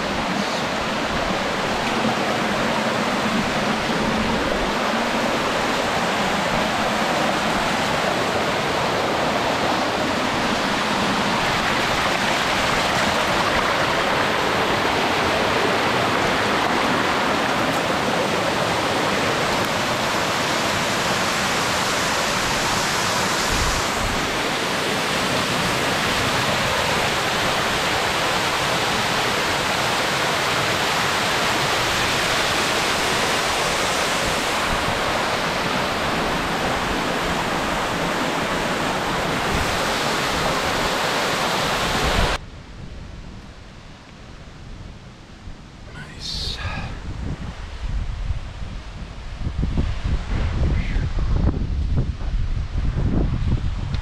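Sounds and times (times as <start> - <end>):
mountain stream rushing: 0.0 - 42.4.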